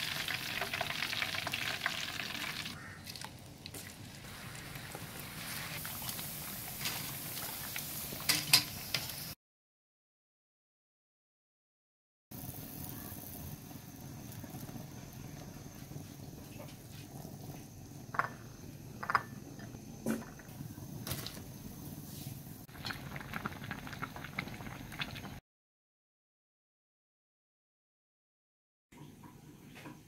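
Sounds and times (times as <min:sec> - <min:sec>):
water boiling in a pot: 0:00.0 - 0:09.4, 0:12.3 - 0:25.4.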